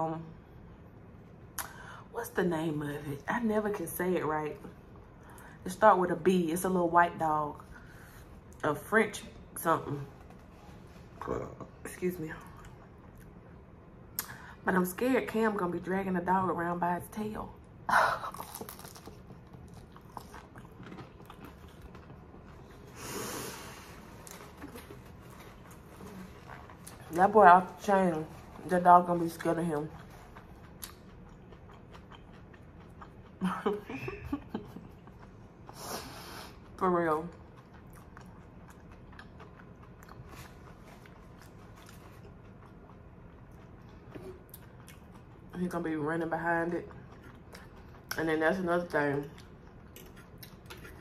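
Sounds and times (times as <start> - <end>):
person chewing: 18.2 - 27.2, 29.8 - 33.4, 34.3 - 45.5, 46.9 - 48.2, 49.3 - 51.0.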